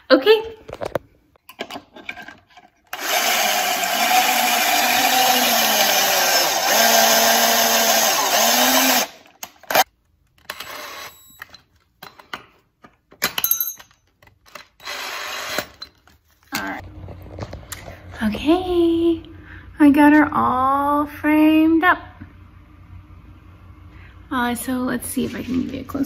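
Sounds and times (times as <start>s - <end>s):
cordless drill boring into wood: 2.9s - 9.8s, 14.8s - 15.8s.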